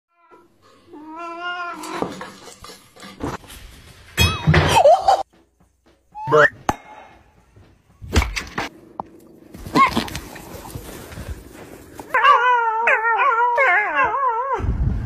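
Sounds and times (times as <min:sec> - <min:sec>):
knocks and clatter: 0:01.8 - 0:12.2.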